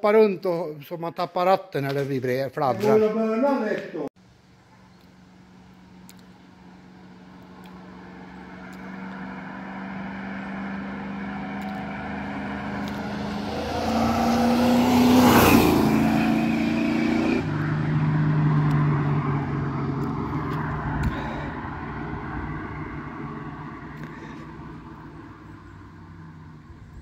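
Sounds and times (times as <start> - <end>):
car engine passing: 5.8 - 27.0.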